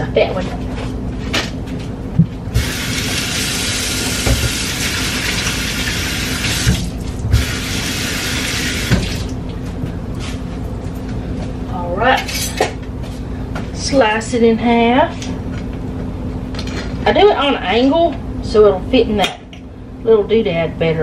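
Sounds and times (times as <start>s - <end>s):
tap running into sink: 4.2s - 4.8s.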